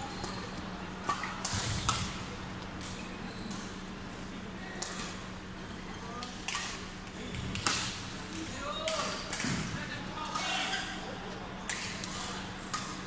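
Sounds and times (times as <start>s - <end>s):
low hum of hall: 0.0s - 13.0s.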